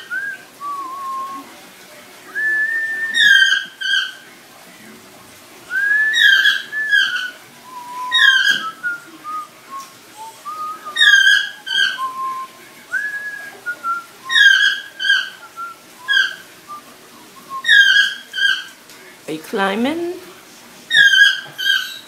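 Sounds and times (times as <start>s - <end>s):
parrot whistling: 0.0s - 1.5s, 2.4s - 4.2s, 5.7s - 18.7s, 20.9s - 22.0s.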